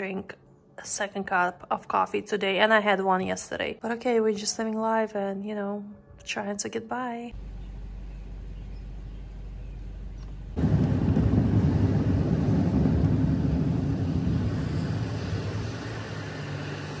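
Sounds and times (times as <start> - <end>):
low steady hum: 7.4 - 17.0
car road noise on wet road: 10.6 - 17.0.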